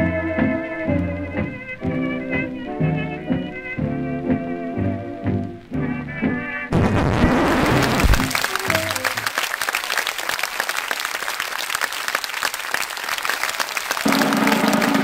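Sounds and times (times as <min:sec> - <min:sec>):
music: 0:00.0 - 0:09.2, 0:14.1 - 0:15.0
audience applauding: 0:07.2 - 0:15.0.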